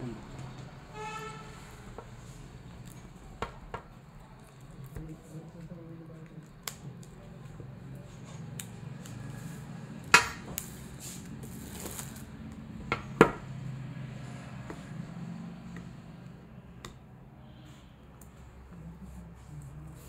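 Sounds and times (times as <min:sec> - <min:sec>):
plastic wrap rustling: 0:10.5 - 0:12.4.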